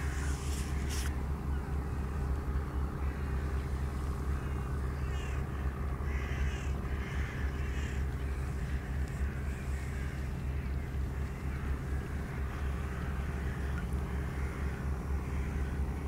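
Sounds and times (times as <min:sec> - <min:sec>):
steady low hum: 0:00.0 - 0:16.0
crows cawing: 0:05.0 - 0:08.1, 0:08.8 - 0:15.8.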